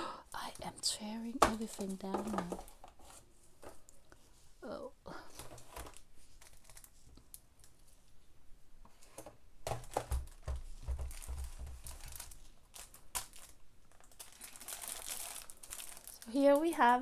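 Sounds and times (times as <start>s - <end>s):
plastic film crinkling: 0.4s - 3.1s, 5.4s - 7.9s, 9.7s - 17.0s.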